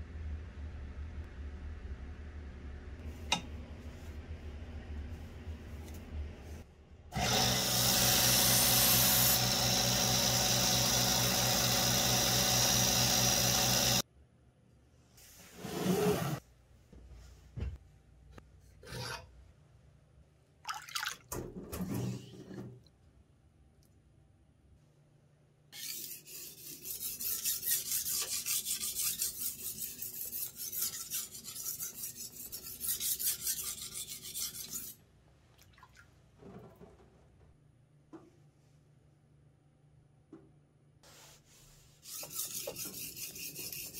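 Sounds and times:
belt grinder running: 0:07.2 - 0:14.0
knife scraping on whetstone: 0:25.8 - 0:35.0, 0:42.0 - 0:43.9.

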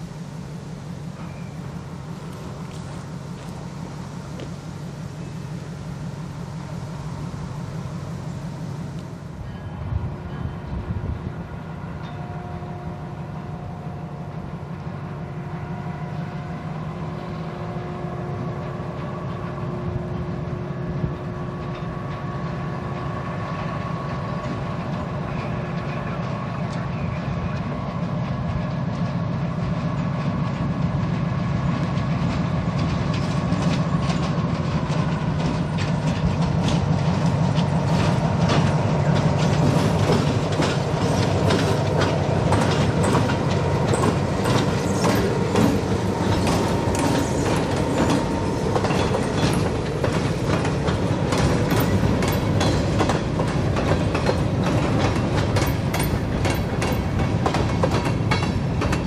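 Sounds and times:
diesel locomotive running: 0:00.0 - 0:59.0
train wheels clicking over rail joints: 0:21.1 - 0:59.0.

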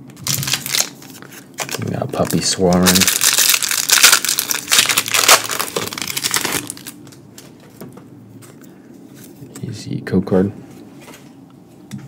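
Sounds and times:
foil wrapper crinkling: 0:00.1 - 0:07.2.

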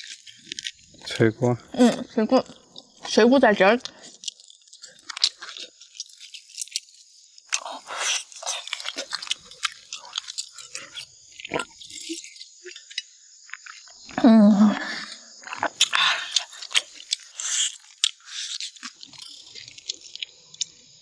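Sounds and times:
crunching and chewing: 0:00.0 - 0:14.2, 0:14.8 - 0:21.0
small clicks: 0:17.9 - 0:20.9.

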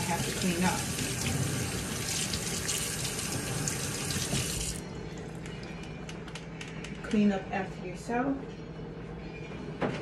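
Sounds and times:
faucet water running into sink: 0:00.0 - 0:04.8.

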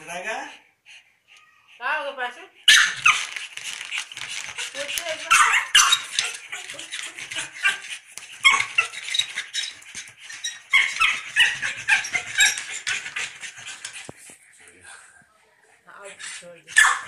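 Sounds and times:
dog whining and yapping: 0:02.7 - 0:14.0, 0:16.7 - 0:17.0.

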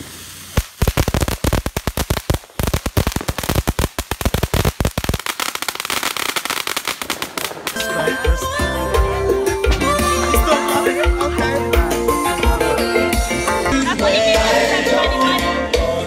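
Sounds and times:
fireworks crackling: 0:00.0 - 0:08.8.

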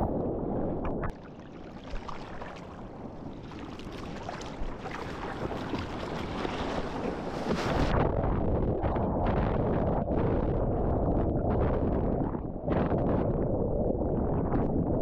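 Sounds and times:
water splashing: 0:00.8 - 0:07.9
wind buffeting microphone: 0:04.6 - 0:15.0.

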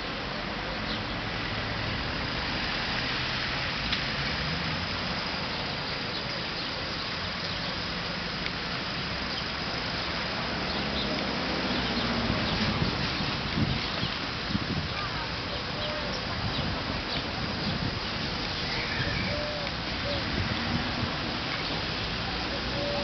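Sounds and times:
cars passing on wet road: 0:00.0 - 0:23.0
street traffic hum: 0:00.0 - 0:23.0.

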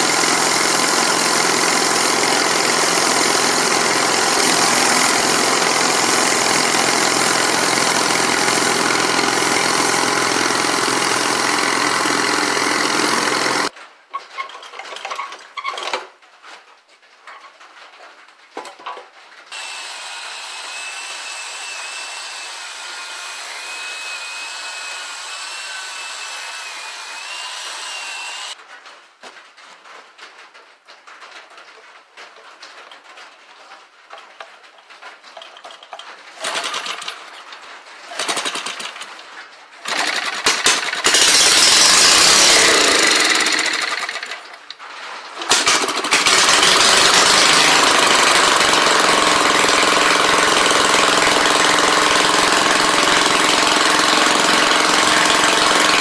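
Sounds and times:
tractor engine running: 0:00.0 - 0:13.8, 0:35.3 - 0:44.6, 0:45.4 - 0:56.0.

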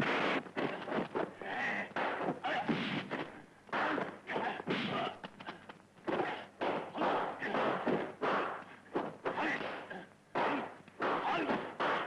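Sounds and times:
punch and kick impacts: 0:02.0 - 0:03.2, 0:06.1 - 0:12.0.

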